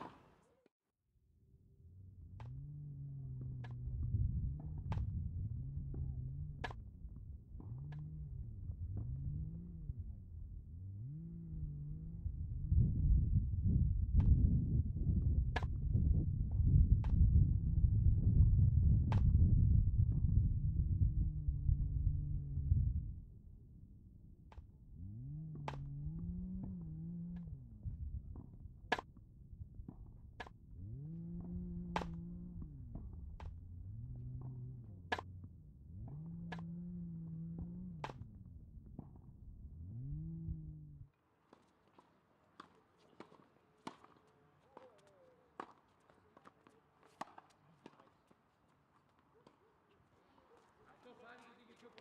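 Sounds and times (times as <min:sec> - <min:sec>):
low hum: 0:01.3 - 0:41.1
ball bouncing: 0:15.4 - 0:17.4, 0:25.5 - 0:29.2, 0:29.9 - 0:39.4, 0:41.5 - 0:52.0
tennis ball pocks: 0:31.4 - 0:33.6, 0:41.5 - 0:52.0
footsteps on court: 0:41.5 - 0:52.0.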